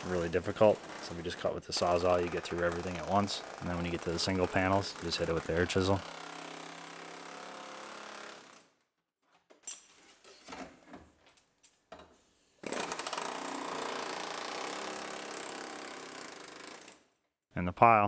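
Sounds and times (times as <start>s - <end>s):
steady tool sound: 0.0s - 8.7s, 12.6s - 17.0s.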